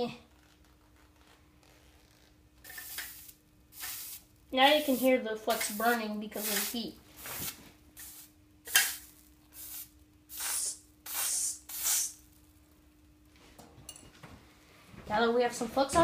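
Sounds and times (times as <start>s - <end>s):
flux sizzling on hot metal: 2.6s - 12.5s.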